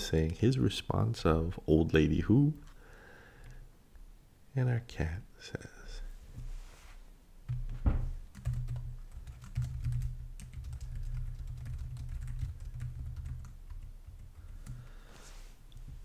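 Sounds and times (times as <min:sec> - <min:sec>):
computer keyboard typing: 0:08.3 - 0:14.8.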